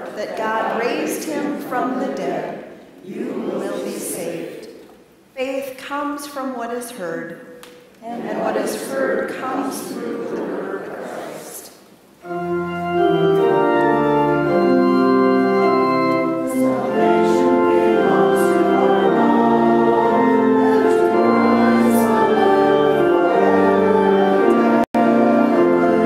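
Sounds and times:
church organ playing a hymn: 12.2 - 26.0.

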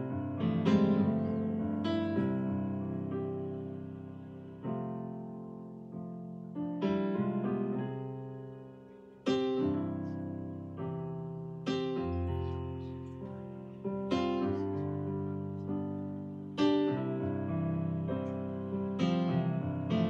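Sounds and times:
slow piano chords: 0.0 - 20.0.

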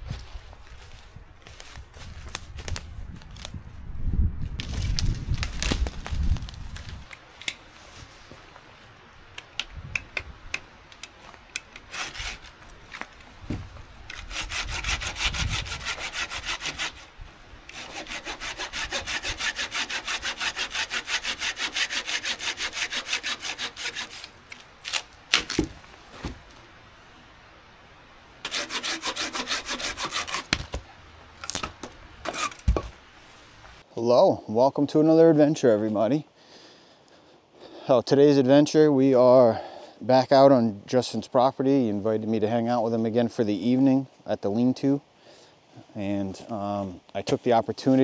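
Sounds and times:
footsteps in dry leaves: 0.0 - 3.8, 4.6 - 7.1, 7.7 - 8.9
hand saw cutting wood: 11.8 - 12.5, 14.1 - 17.1, 17.7 - 25.7, 28.4 - 30.8, 32.2 - 32.9.

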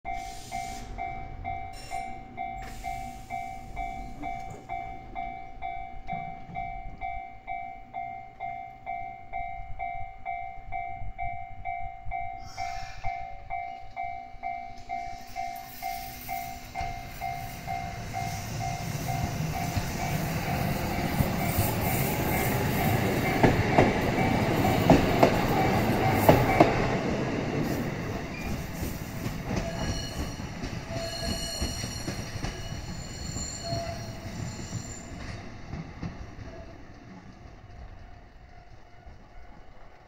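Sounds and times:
level crossing alarm ringing: 0.1 - 27.7
tram pulling away: 0.1 - 40.0.

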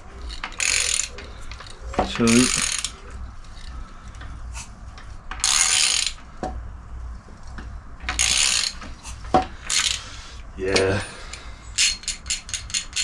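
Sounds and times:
ratchet wrench clicking: 0.3 - 3.0, 5.4 - 6.2, 8.1 - 8.8, 9.7 - 10.0, 11.8 - 13.0.

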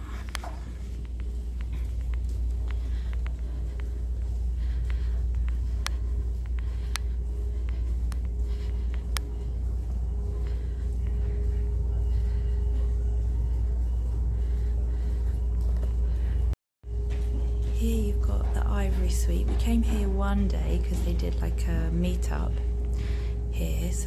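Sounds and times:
faint steady hum: 0.0 - 24.0
low rumble: 0.0 - 24.0.

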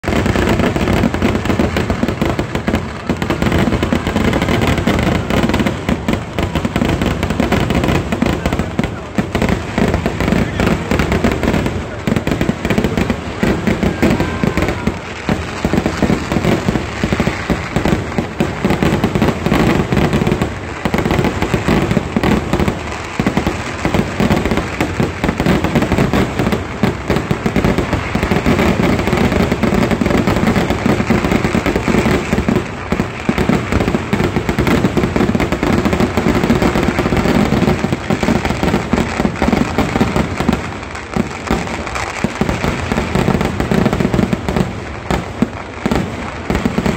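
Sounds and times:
fireworks bangs and crackling: 0.0 - 46.9.

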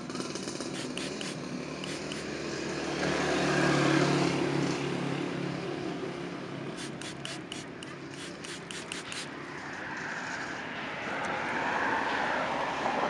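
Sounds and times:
vehicle passing by: 0.0 - 13.0
spray bottle squirts: 0.7 - 2.3, 6.7 - 9.3.

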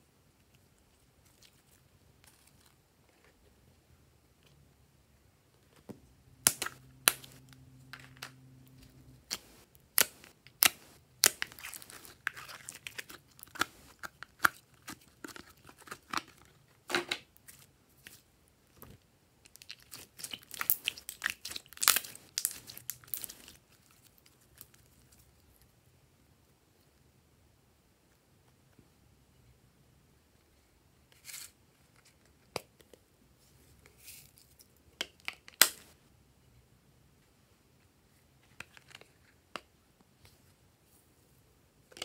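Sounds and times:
thin plastic crinkling: 6.5 - 16.8, 17.4 - 25.7
sticky slime crackles and pops: 19.5 - 23.7.

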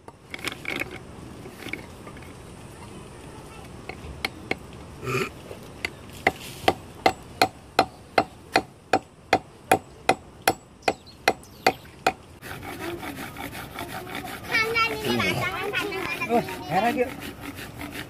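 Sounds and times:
rod rubbing on stone: 12.4 - 18.0.

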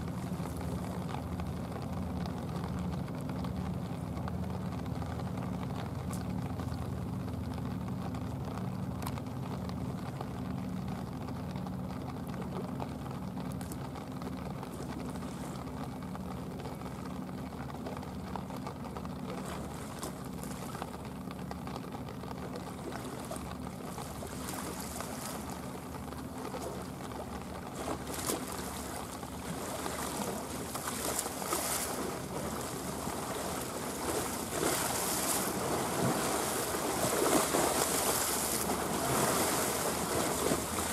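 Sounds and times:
boat engine droning: 0.0 - 40.9
waves splashing against stone steps: 18.9 - 40.9.

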